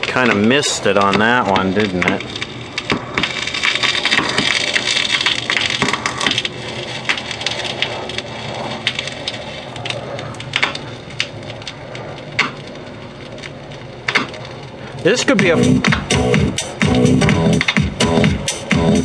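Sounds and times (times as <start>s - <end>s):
vinyl clicks and pops: 0.0s - 6.5s, 10.6s - 11.3s, 12.2s - 12.8s, 14.0s - 14.5s, 15.8s - 19.0s
record surface noise hiss: 0.0s - 19.0s.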